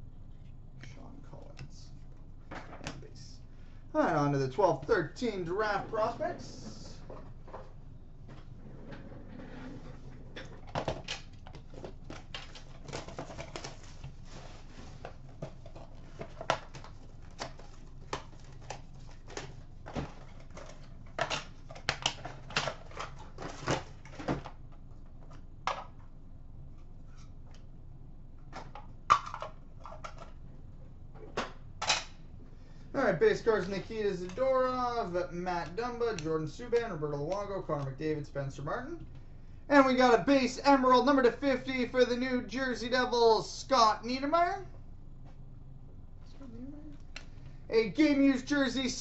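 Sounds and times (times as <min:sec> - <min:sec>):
cards handled with clicks and rustles: 0:10.4 - 0:26.0, 0:28.4 - 0:30.5.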